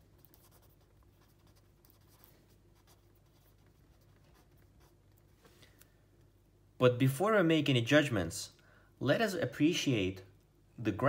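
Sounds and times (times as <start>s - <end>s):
pen scratching on paper: 0.0s - 5.1s
low steady hum: 0.0s - 11.0s.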